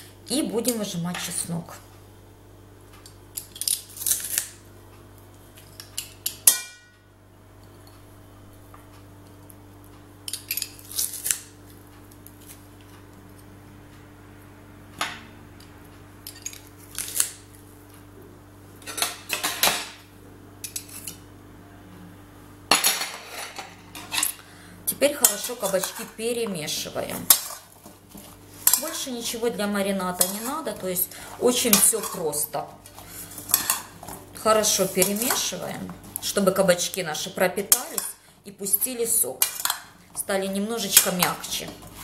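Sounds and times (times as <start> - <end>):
knife scraping metal: 30.2 - 30.7.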